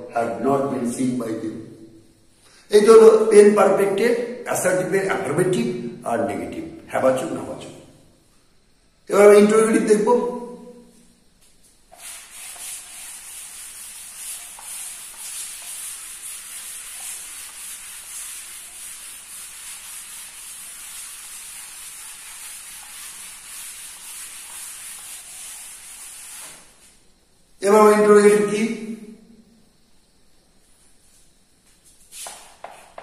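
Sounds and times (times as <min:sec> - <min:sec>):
eraser scrubbing a chalkboard: 0:11.9 - 0:27.0, 0:32.1 - 0:33.0.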